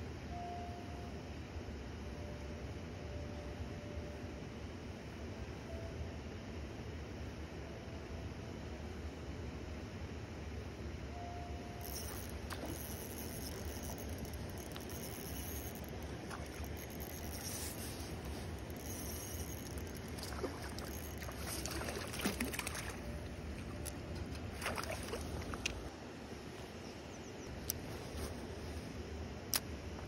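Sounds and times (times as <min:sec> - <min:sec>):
water splashing and lapping: 0:11.8 - 0:25.9.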